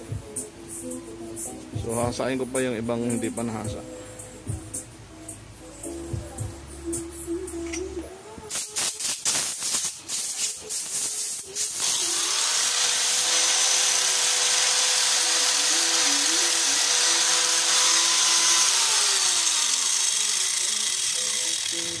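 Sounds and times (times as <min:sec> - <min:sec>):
angle grinder running: 0:11.7 - 0:22.0.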